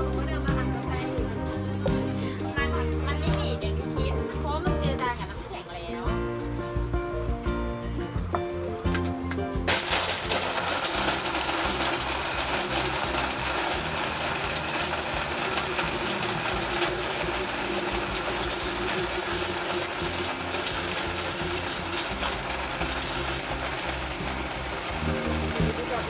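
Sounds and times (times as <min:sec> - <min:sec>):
blender motor running: 0:09.7 - 0:26.0.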